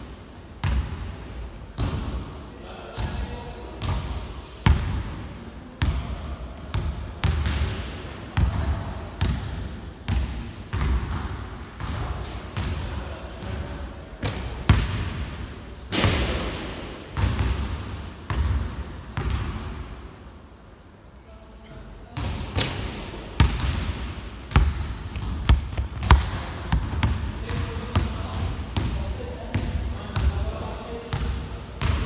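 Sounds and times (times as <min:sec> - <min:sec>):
basketball striking hoop: 0:24.5 - 0:27.2
basketball bouncing on hardwood: 0:24.6 - 0:27.2.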